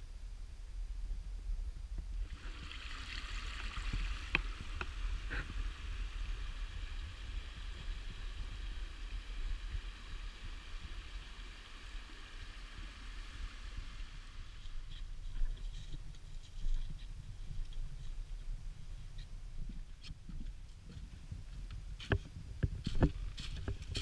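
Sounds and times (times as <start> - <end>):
creek trickling over stones: 2.2 - 15.4.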